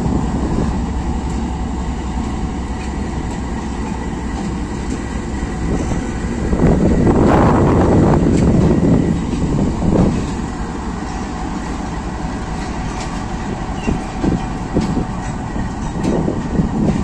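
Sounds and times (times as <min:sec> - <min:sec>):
wind rumble on microphone: 0:00.0 - 0:01.4, 0:05.6 - 0:11.2, 0:12.5 - 0:17.0
train wheels rumbling on rails: 0:00.0 - 0:17.0.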